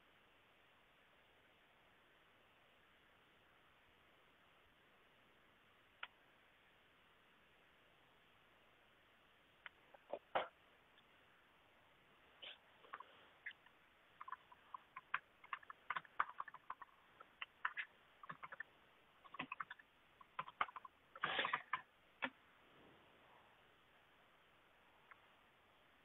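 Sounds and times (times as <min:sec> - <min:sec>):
keyboard and mouse clicking: 0:12.9 - 0:22.4.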